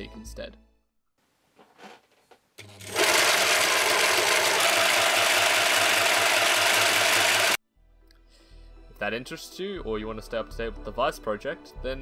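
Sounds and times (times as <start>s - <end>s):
scroll saw chattering: 2.8s - 7.6s.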